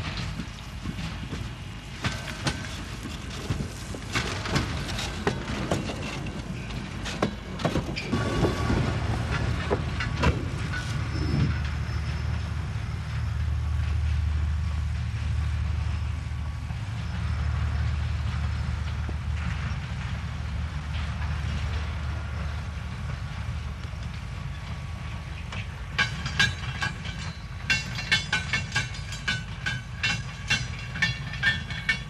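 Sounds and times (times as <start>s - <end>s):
metallic clanks and knocks: 0.0s - 11.8s, 25.4s - 32.0s
freight wagons rumbling: 0.0s - 32.0s.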